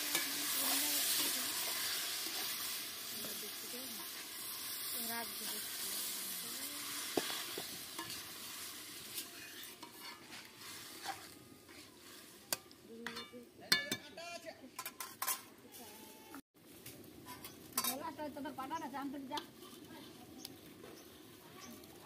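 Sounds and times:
curry sizzling in a wok: 0:00.0 - 0:14.0, 0:14.7 - 0:22.0
metal spatula scraping a pan: 0:00.0 - 0:14.0, 0:14.8 - 0:16.3, 0:17.2 - 0:18.1, 0:19.3 - 0:20.2.

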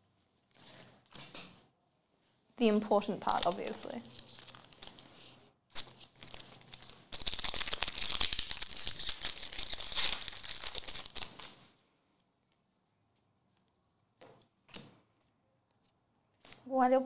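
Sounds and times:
foil wrapper tearing and crinkling: 0:05.7 - 0:11.6.

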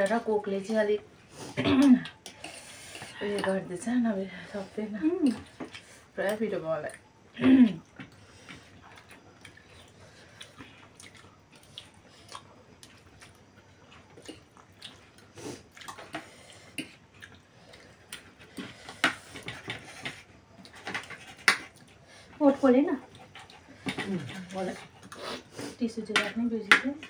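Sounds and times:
chewing and slurping: 0:01.2 - 0:03.8, 0:04.4 - 0:07.1, 0:07.8 - 0:25.8.

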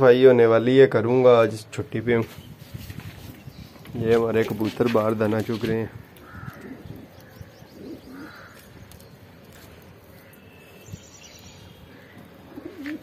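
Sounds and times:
pigeons cooing: 0:06.2 - 0:09.0, 0:11.9 - 0:13.0.

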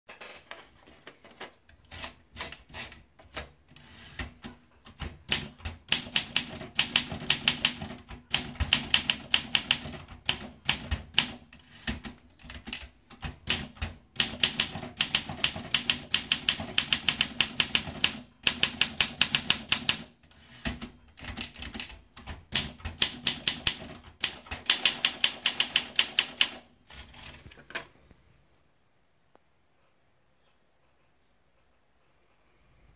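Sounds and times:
rapid typewriter keystrokes: 0:01.9 - 0:27.5
typewriter paper feed clicks: 0:01.9 - 0:27.6.

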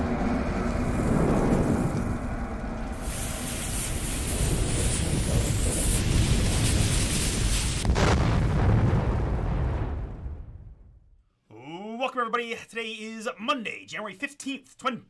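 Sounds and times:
fire crackling and hissing: 0:00.4 - 0:10.6.

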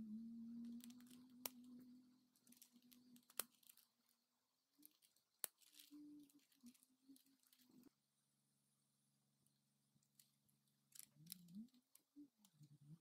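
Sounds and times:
faint low hum: 0:00.0 - 0:13.0
plastic parts clicking: 0:00.6 - 0:04.0, 0:04.8 - 0:07.9, 0:10.0 - 0:12.8
plastic parts snapping: 0:02.4 - 0:03.9, 0:04.8 - 0:07.8.

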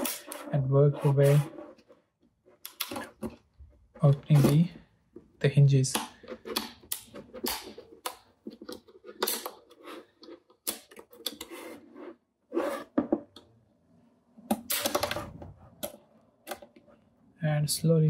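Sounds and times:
plastic clips clicking and scraping: 0:02.6 - 0:03.4.

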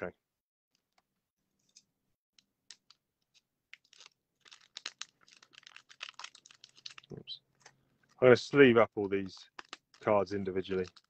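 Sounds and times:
plastic packaging crinkling: 0:02.6 - 0:11.0.

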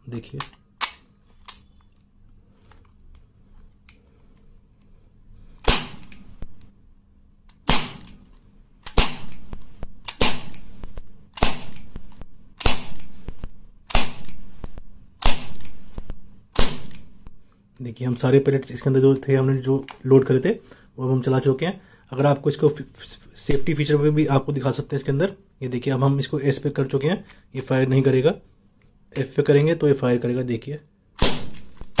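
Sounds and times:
pellet revolver firing sharp pops: 0:08.8 - 0:17.0.

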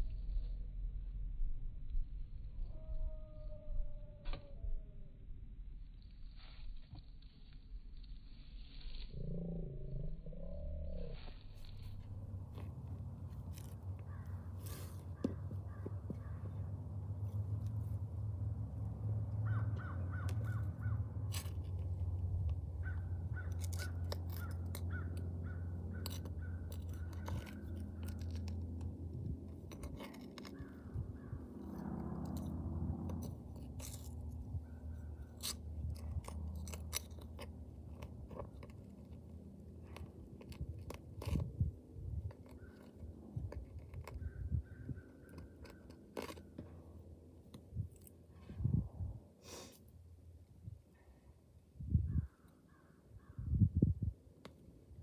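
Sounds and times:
steady low rumble: 0:00.0 - 0:55.0
rustling of weeds being pulled: 0:10.5 - 0:18.2, 0:19.4 - 0:44.4
hand tool scraping into dry soil: 0:11.1 - 0:15.4, 0:21.3 - 0:22.2, 0:23.3 - 0:25.0, 0:25.9 - 0:44.3
bird calling: 0:14.0 - 0:16.7, 0:19.4 - 0:21.1.

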